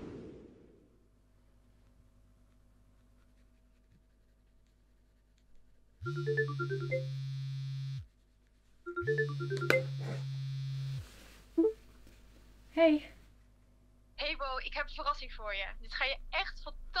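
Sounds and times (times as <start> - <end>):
mobile phone ringtone: 6.0 - 7.5, 8.9 - 10.2
steady low buzz: 6.0 - 8.2, 9.0 - 11.7, 13.2 - 17.0.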